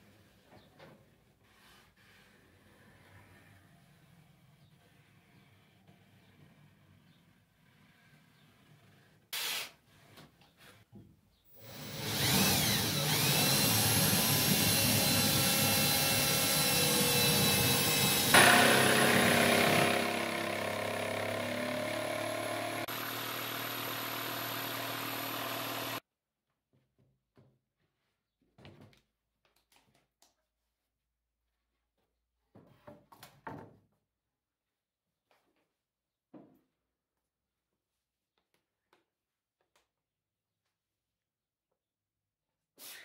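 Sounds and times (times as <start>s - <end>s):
electric drill boring through wood: 11.5s - 26.0s.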